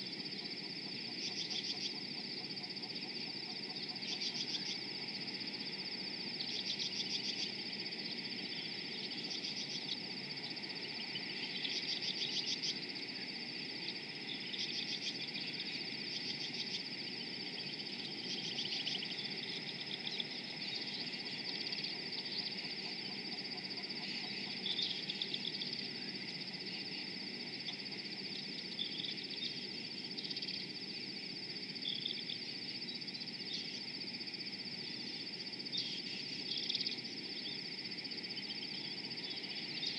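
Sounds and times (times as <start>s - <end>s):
high-pitched insect drone: 0.0s - 39.9s.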